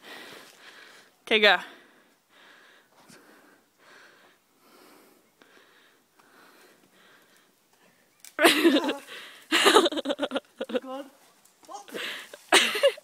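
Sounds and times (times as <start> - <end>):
soft breathing: 0.0 - 8.1, 11.9 - 12.4.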